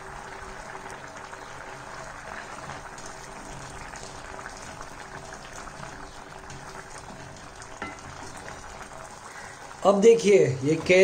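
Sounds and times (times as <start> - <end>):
thick sauce bubbling: 0.0 - 11.0
spatula stirring: 2.4 - 9.2.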